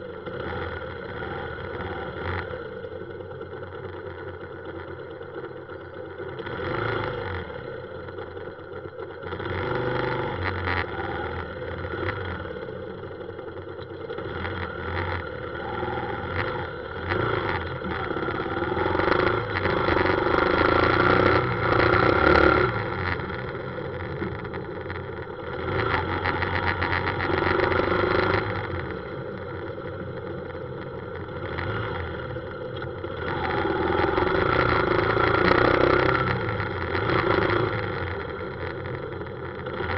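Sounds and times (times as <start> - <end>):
motorcycle engine running: 0.0 - 39.9
surrounding traffic: 0.0 - 39.9.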